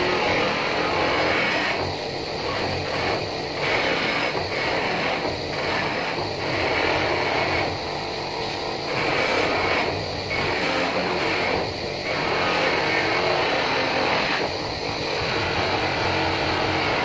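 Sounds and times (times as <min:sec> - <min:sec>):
buffing wheel grinding metal: 0:00.0 - 0:17.0.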